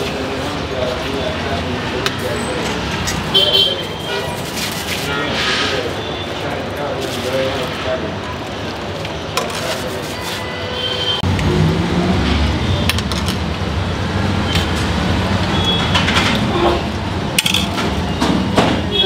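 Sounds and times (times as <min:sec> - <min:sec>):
street traffic hum: 0:00.0 - 0:19.0
metal spoon clinking on pans: 0:17.4 - 0:17.8.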